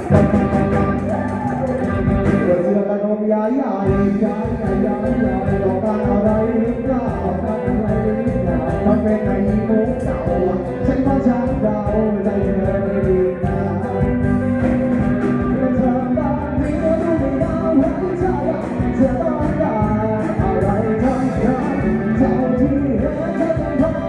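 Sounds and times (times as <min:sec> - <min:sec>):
drums beating: 0:00.0 - 0:02.7, 0:03.9 - 0:24.0
live band playing: 0:00.0 - 0:24.0
person singing: 0:00.0 - 0:24.0.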